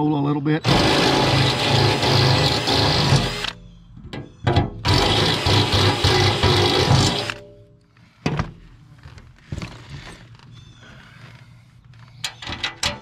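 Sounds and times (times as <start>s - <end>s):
cordless drill drilling metal: 0.6s - 3.6s, 4.8s - 7.4s.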